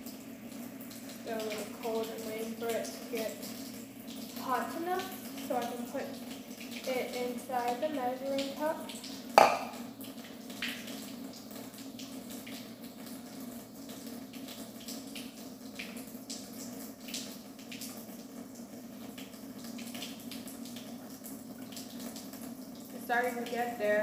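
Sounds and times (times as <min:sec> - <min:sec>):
faucet running into a tub: 0:00.0 - 0:24.0
sharp knock: 0:09.4 - 0:09.8.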